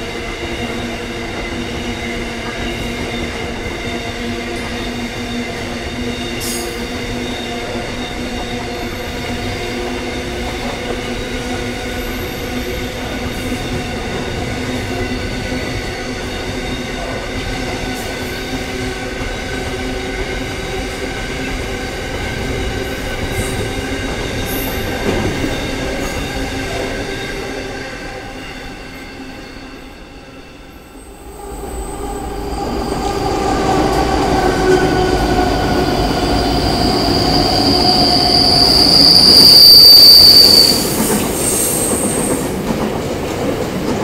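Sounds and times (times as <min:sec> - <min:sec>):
diesel locomotive approaching: 0:00.0 - 0:44.0
wheels squealing: 0:31.0 - 0:42.2.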